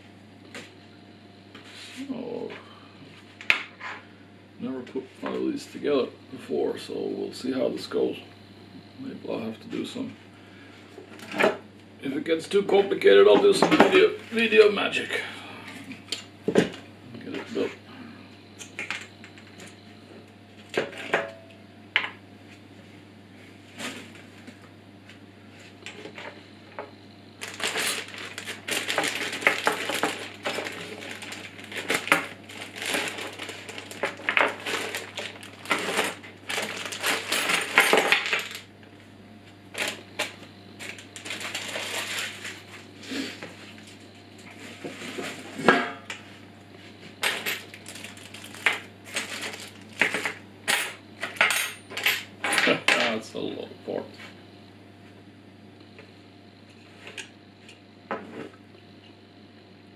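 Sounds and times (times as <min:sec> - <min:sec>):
crinkling plastic bag: 0:27.4 - 0:38.7, 0:39.8 - 0:40.0, 0:40.8 - 0:42.9, 0:47.2 - 0:50.4.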